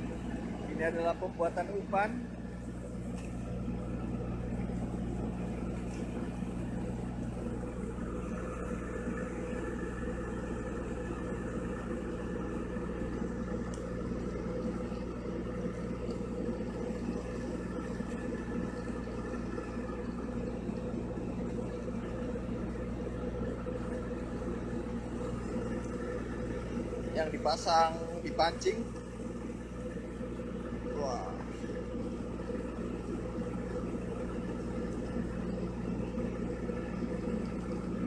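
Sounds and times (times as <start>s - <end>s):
boat engine droning: 0.0s - 38.0s.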